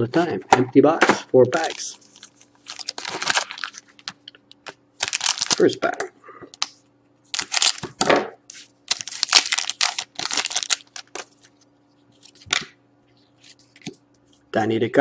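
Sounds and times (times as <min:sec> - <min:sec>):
foil wrapper tearing and crinkling: 0:01.6 - 0:04.2, 0:05.0 - 0:05.8, 0:07.3 - 0:11.4.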